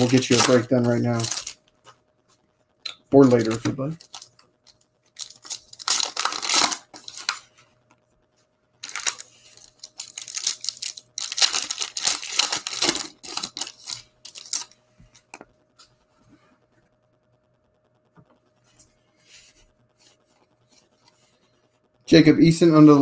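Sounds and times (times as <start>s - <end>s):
foil wrappers tearing and crinkling: 0.0s - 1.6s, 3.1s - 7.5s, 8.8s - 14.8s.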